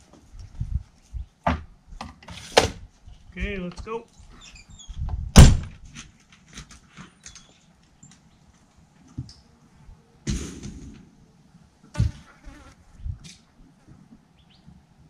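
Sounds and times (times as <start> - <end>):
door slamming shut: 5.3 - 5.8.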